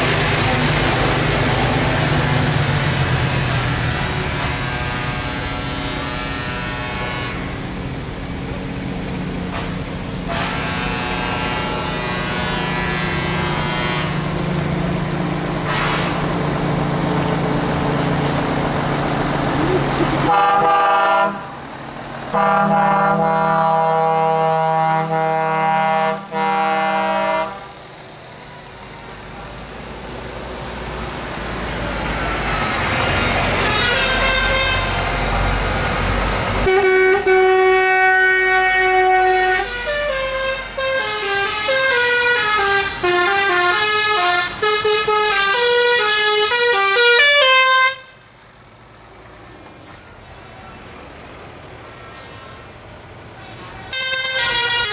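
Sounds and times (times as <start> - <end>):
truck engine passing: 0.0 - 54.9
truck chord horn: 3.3 - 7.9, 9.5 - 14.5, 15.7 - 16.3, 20.2 - 21.6, 22.3 - 27.8, 33.6 - 35.2, 36.6 - 48.2, 53.9 - 54.9
horn playing stepping melody: 19.7 - 21.5, 54.0 - 54.9.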